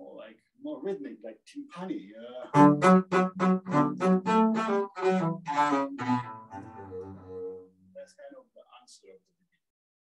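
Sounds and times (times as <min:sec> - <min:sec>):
bowed double bass: 0:02.5 - 0:07.8.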